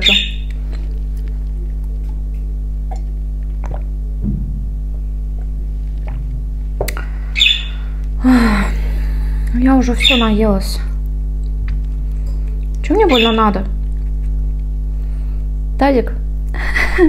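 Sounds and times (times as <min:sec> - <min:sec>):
steady low hum: 0:00.0 - 0:17.0
mouth clicks from eating: 0:02.0 - 0:03.9
person gulping a drink: 0:02.9 - 0:04.4, 0:05.3 - 0:07.0.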